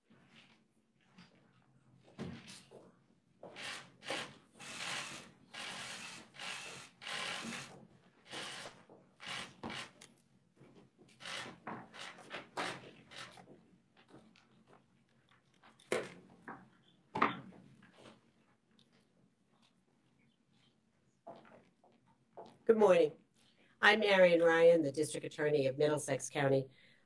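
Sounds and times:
papers and microphones rustling: 0:12.3 - 0:22.6.

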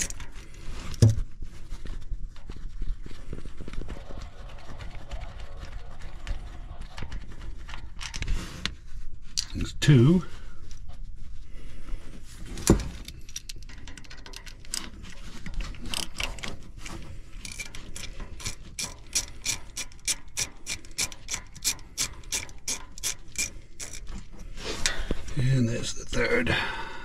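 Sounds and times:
hand ratchet clicking: 0:00.0 - 0:00.2, 0:17.4 - 0:25.0.

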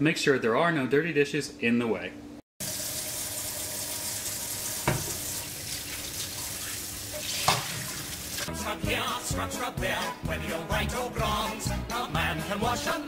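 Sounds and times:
faucet running into metal sink: 0:02.6 - 0:08.5
pan knocking: 0:04.8 - 0:05.3.

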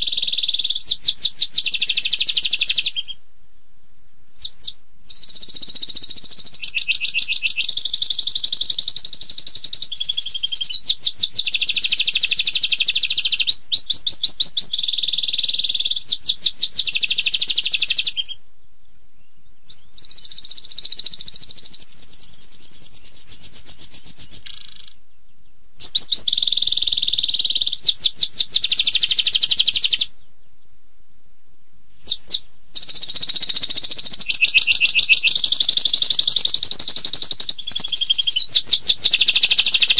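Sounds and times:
canary singing: 0:00.0 - 0:03.2, 0:04.4 - 0:30.7, 0:32.0 - 0:39.9.

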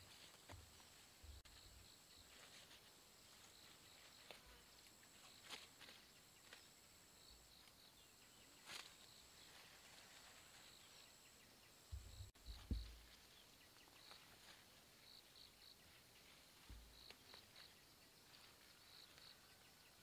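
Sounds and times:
low thumps: 0:11.9 - 0:13.1.

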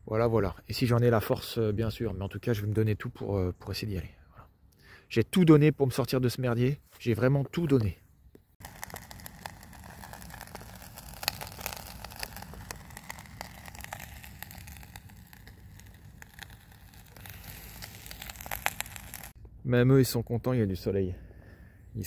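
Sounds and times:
boiling water popping and crackling: 0:08.6 - 0:19.4
camping stove hissing: 0:08.6 - 0:19.4.

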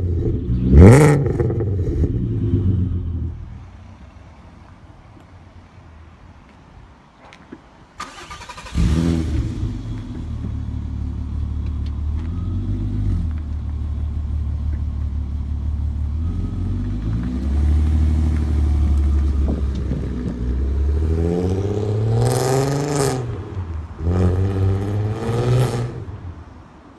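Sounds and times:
car engine idling and revving: 0:00.0 - 0:05.7, 0:08.0 - 0:26.8.

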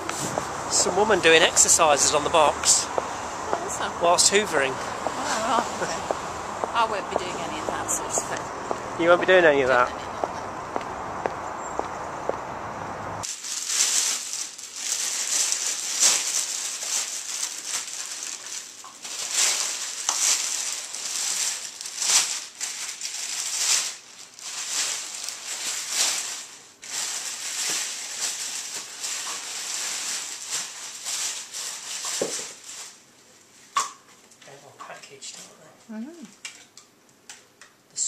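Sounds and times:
plastic packaging crinkling: 0:13.2 - 0:33.0.

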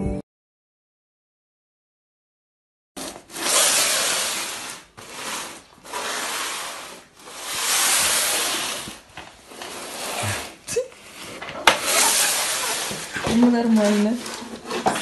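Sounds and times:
box scraping on laminate floor: 0:03.0 - 0:15.0.

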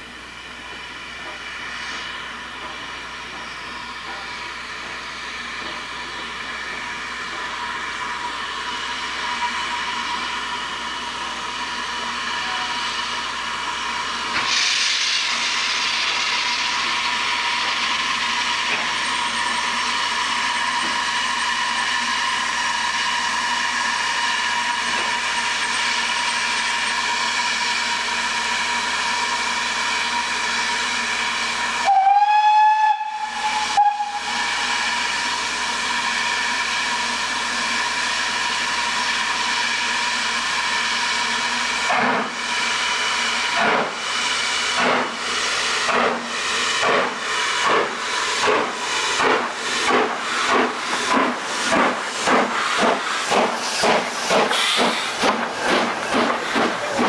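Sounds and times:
steam locomotive hissing: 0:00.0 - 0:57.0
steam whistle: 0:31.7 - 0:37.0.

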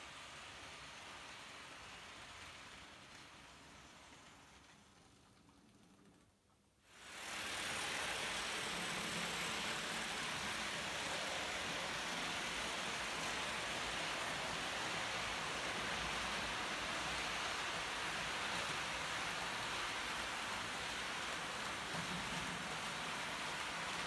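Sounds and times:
model train wheels on track: 0:00.0 - 0:24.0.

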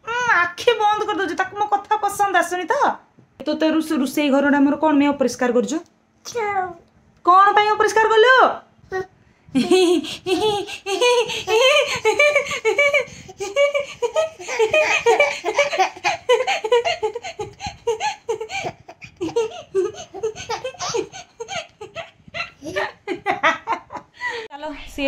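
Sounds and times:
woman laughing: 0:09.5 - 0:24.5
toddler laughing: 0:09.6 - 0:24.0.

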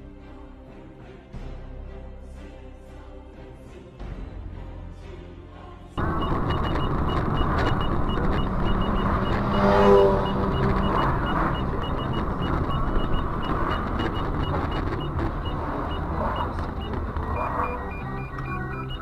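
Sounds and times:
engine and road rumble: 0:06.0 - 0:19.0
faint high beeping: 0:06.0 - 0:19.0
short pitched tone: 0:06.0 - 0:19.0.

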